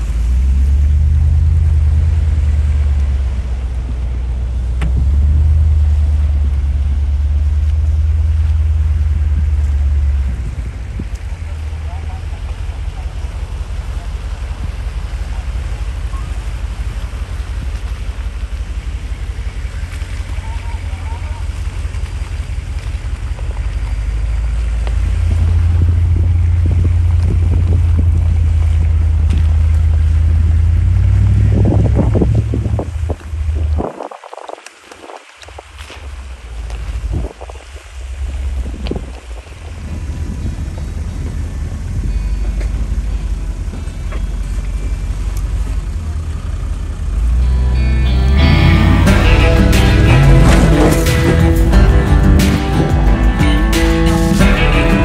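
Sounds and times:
wind buffeting microphone: 0:00.0 - 0:20.3, 0:21.6 - 0:45.2
vehicles rumbling on dirt track: 0:00.0 - 0:55.0
stones clicking under tyres: 0:21.4 - 0:30.5
music: 0:47.4 - 0:55.0.

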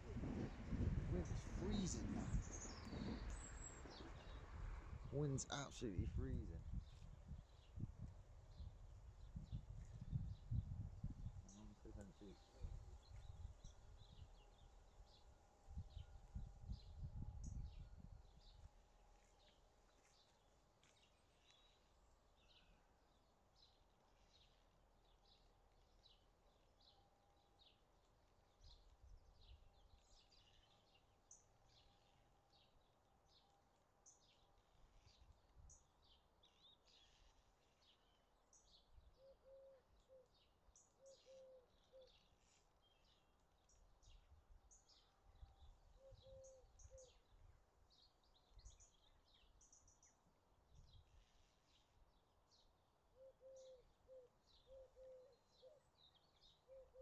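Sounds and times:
wind rumbling on microphone: 0:00.0 - 0:14.4, 0:15.6 - 0:18.5
small birds chirping: 0:00.0 - 0:18.7, 0:19.3 - 0:57.0.

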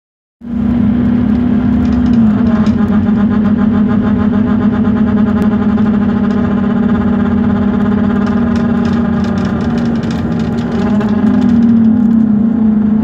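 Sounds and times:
bus droning hum with pulsing: 0:00.4 - 0:13.0.

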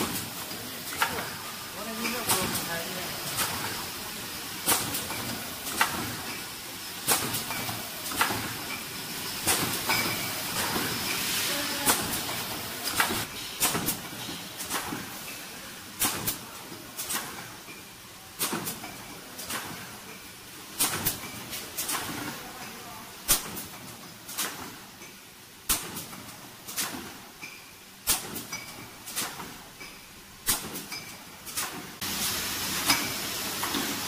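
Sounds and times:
printing machine clacking: 0:00.9 - 0:04.0.

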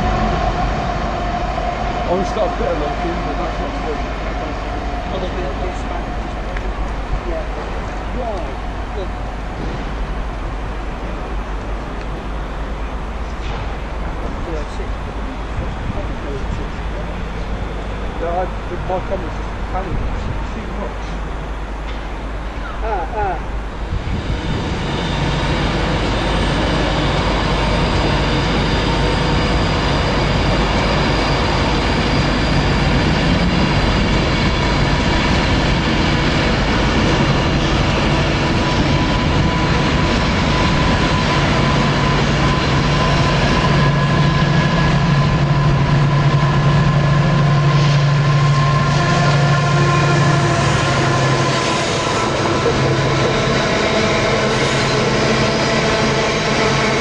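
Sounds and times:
diesel locomotive engine: 0:00.0 - 0:57.0.

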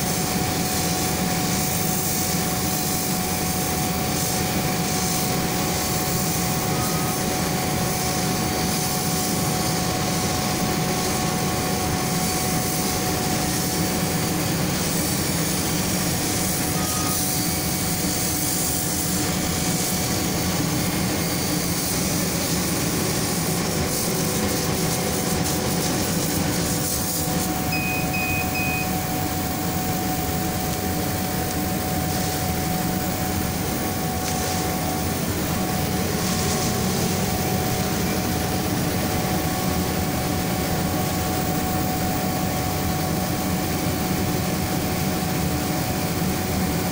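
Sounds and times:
laser cutting machine humming: 0:00.0 - 0:46.9
short electronic beeps: 0:16.8 - 0:17.2, 0:27.7 - 0:29.1.

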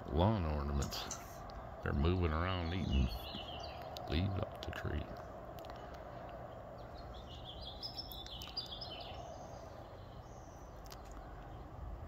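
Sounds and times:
low background hum: 0:00.0 - 0:12.0
small bird chirping: 0:02.3 - 0:11.9.

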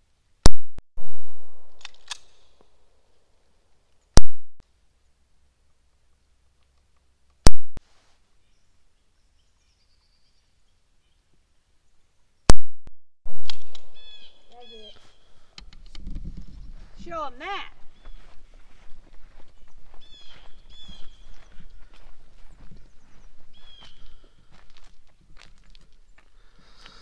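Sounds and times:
gunshot echo: 0:00.5 - 0:02.4.

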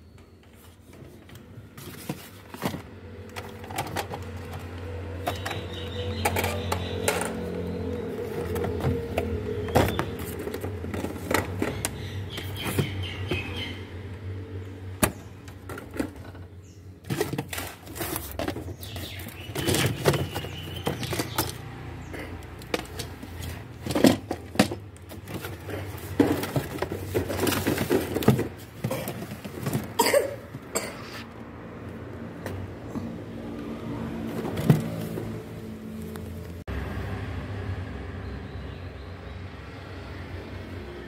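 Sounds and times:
cardboard boxes being handled: 0:00.6 - 0:04.5, 0:08.1 - 0:13.4, 0:17.0 - 0:21.7, 0:22.6 - 0:30.7.

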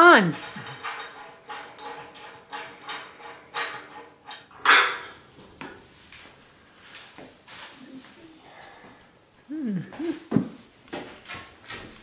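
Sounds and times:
wrench clicking and clanking: 0:00.3 - 0:05.2.

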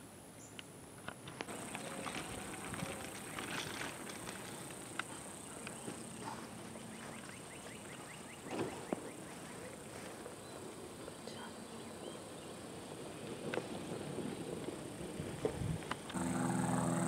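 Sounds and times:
high insect hum: 0:01.4 - 0:17.0
birds calling: 0:01.5 - 0:13.0.

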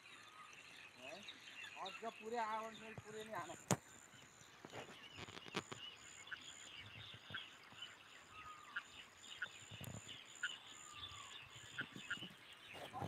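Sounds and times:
bird chirps: 0:00.0 - 0:13.0
pulsing high insect call: 0:00.0 - 0:13.0.

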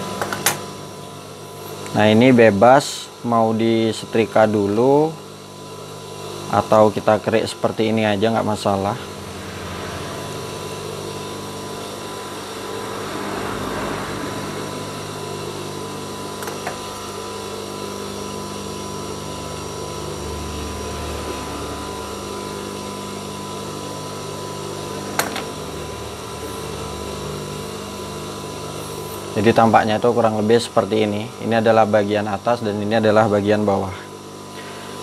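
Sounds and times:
sewing machine motor humming: 0:11.8 - 0:30.8.

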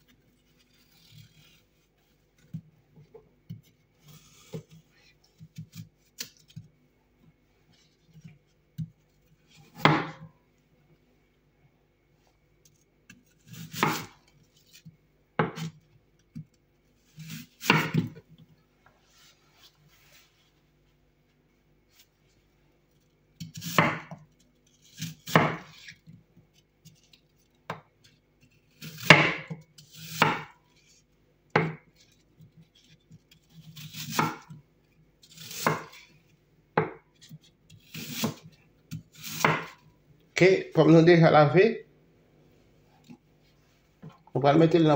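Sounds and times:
knife cutting apple on board: 0:09.6 - 0:10.3, 0:12.7 - 0:16.5, 0:17.1 - 0:18.3, 0:23.4 - 0:26.1, 0:26.8 - 0:30.9, 0:31.5 - 0:34.6, 0:35.2 - 0:36.2, 0:36.8 - 0:39.9.

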